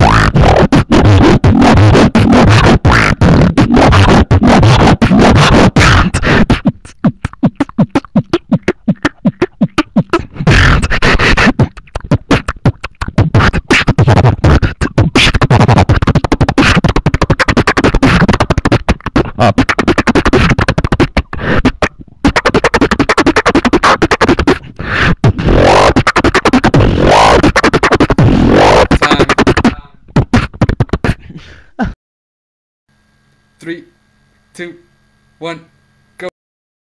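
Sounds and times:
person beatboxing: 0.0 - 32.0
sliding vocal tones: 0.0 - 32.0.

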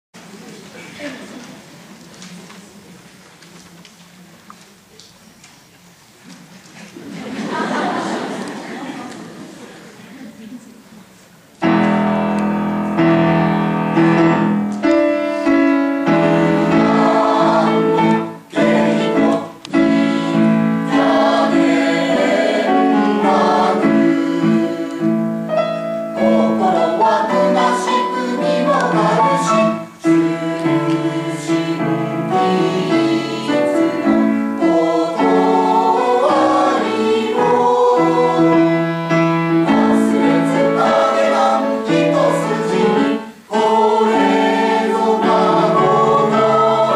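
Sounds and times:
piano accompaniment: 11.6 - 46.9
choir singing: 12.0 - 46.9.

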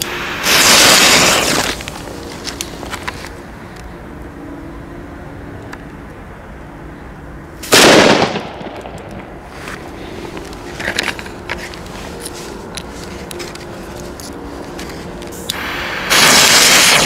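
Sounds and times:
match head flaring hiss: 0.0 - 2.6, 15.3 - 17.0
fuse burning: 0.0 - 4.3, 7.6 - 17.0
firecracker bang: 0.4 - 1.8, 7.6 - 9.0, 15.6 - 17.0.

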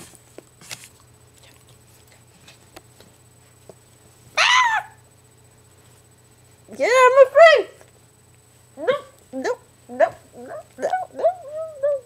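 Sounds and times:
small dog whining: 4.4 - 5.0, 8.8 - 12.0.

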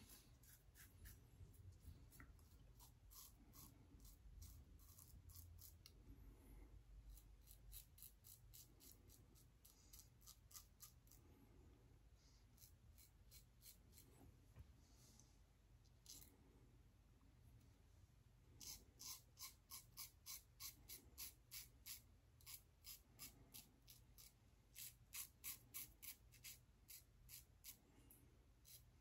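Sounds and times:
razor scraping stubble: 0.0 - 5.9, 7.1 - 11.2, 12.6 - 14.1, 18.6 - 27.8.

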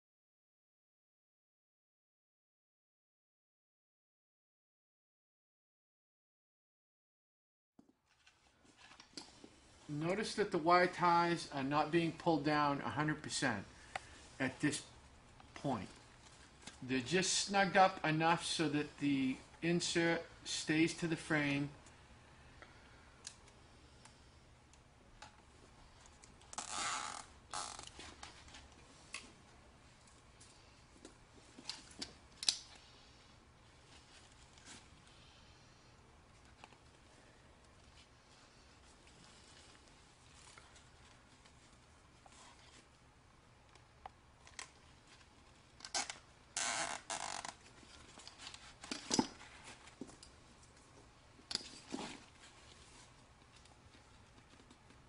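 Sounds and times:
wire tie rasping zip: 26.2 - 28.2, 45.8 - 48.6
wire ties clicking: 31.6 - 32.8.

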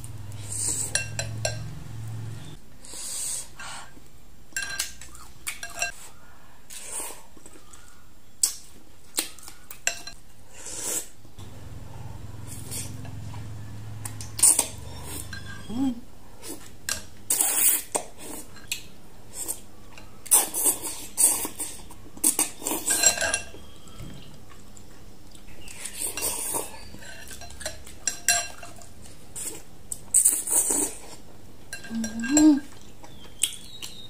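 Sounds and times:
spoon and chopsticks clinking on glass: 0.8 - 1.7, 22.8 - 23.6.

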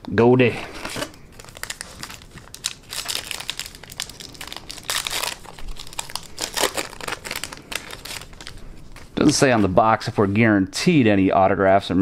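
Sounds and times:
foil wrapper crinkling: 0.8 - 9.4.

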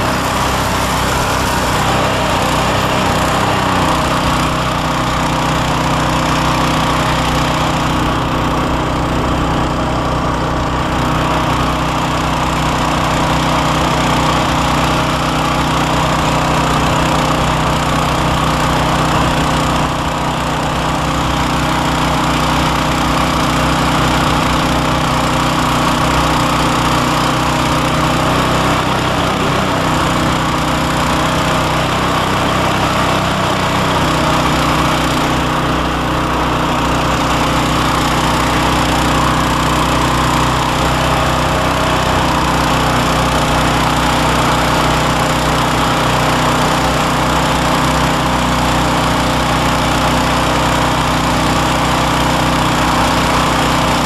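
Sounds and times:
snow rushing through machine: 0.0 - 54.0
snowblower engine running: 0.0 - 54.0.

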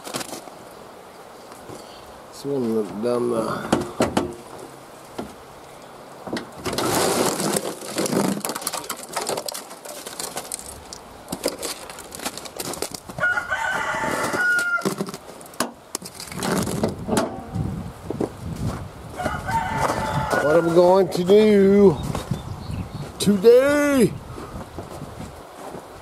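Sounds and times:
rooster crowing: 13.2 - 15.0, 19.2 - 21.0.

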